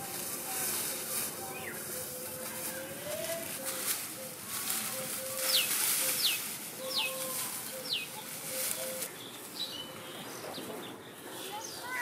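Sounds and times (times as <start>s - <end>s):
dry straw rustling and crackling: 0.0s - 12.0s.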